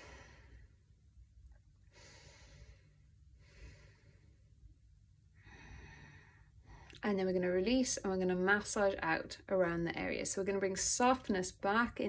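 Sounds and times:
woman breathing softly: 0.0s - 1.1s, 1.8s - 7.0s.

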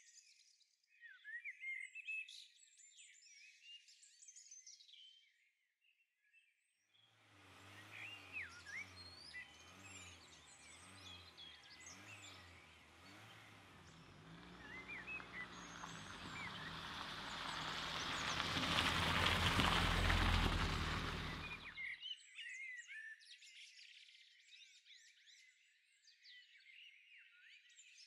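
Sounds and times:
car engine rumble: 7.3s - 21.7s
birds chirping and whistling: 7.7s - 18.4s
tyres crunching on dirt: 7.8s - 21.7s.

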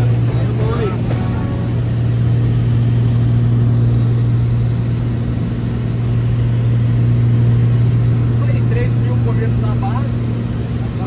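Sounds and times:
aircraft engines droning in cabin: 0.0s - 11.0s.

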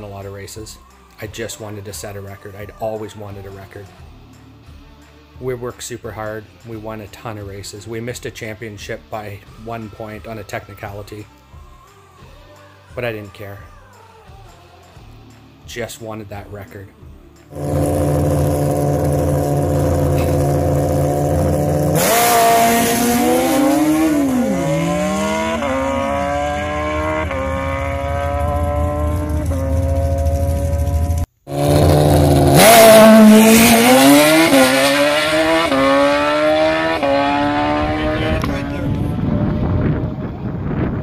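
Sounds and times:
motorcycle engine revving and accelerating: 17.5s - 40.5s.

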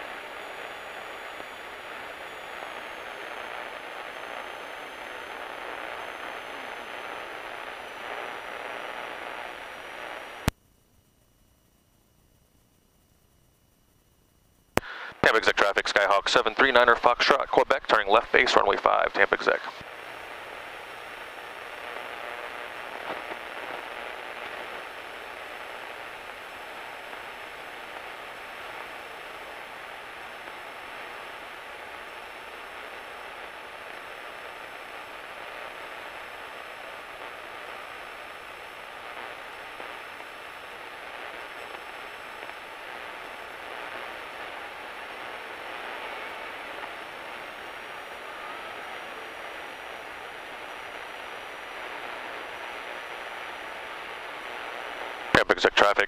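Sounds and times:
aircraft cockpit noise: 0.0s - 10.6s, 14.5s - 56.0s
faint steady tone: 0.0s - 55.4s.

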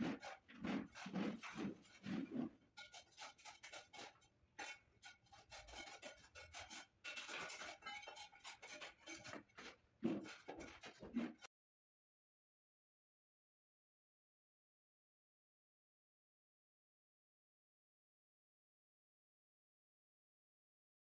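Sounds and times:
rag rubbing over tiles: 0.0s - 11.5s.

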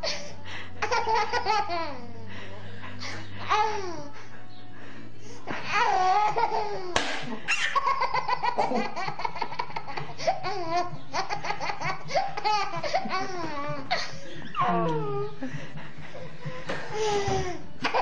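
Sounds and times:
toddler laughing: 0.8s - 2.0s, 5.6s - 15.3s.

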